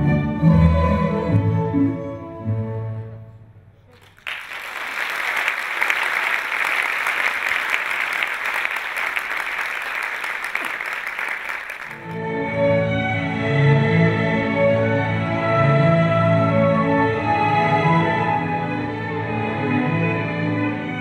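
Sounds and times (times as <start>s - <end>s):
music: 0.0s - 3.8s, 12.0s - 21.0s
audience applauding: 3.9s - 12.2s.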